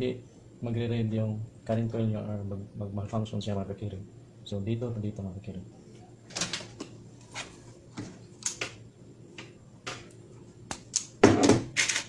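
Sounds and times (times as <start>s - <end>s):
clicks and taps of wiring work: 8.4s - 11.2s.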